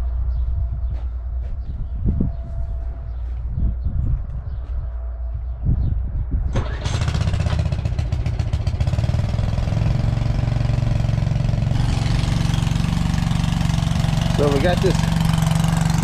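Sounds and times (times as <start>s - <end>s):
small pump engine running: 6.6s - 16.0s.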